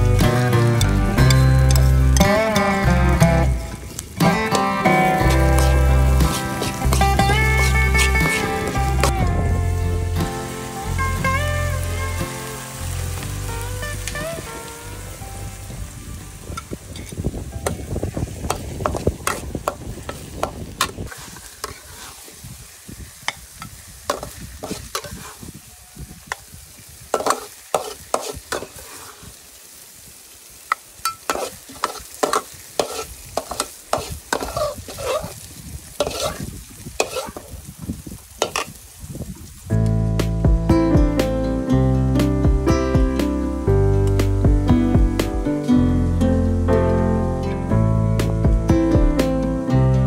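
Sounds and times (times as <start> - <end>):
chilies sizzling in oil: 0.0 - 47.2
metal spatula scraping wok: 0.5 - 3.6, 4.2 - 9.2, 18.5 - 25.5, 27.1 - 29.4, 31.1 - 37.6.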